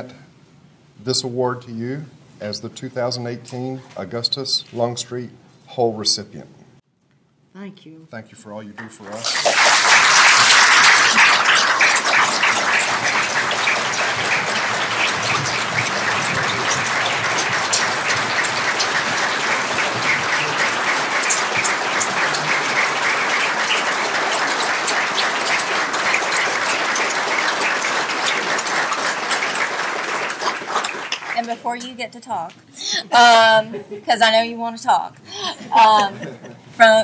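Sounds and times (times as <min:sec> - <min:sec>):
audience applauding: 0:09.0 - 0:31.6.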